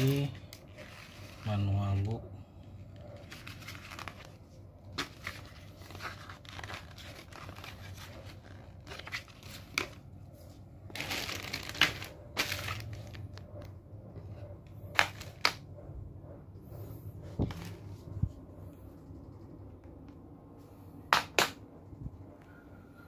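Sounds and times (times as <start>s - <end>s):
paper and plastic bag rustling: 3.2s - 13.4s.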